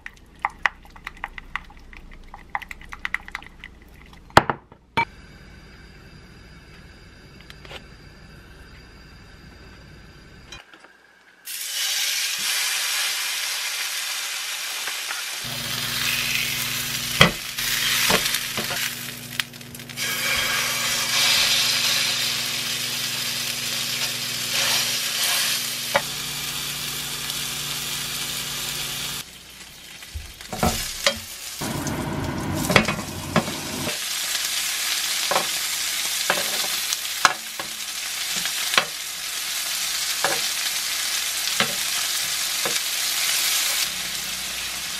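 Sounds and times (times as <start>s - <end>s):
low steady hum: 0.0s - 10.6s
meat sizzling in grill pan: 11.5s - 44.9s.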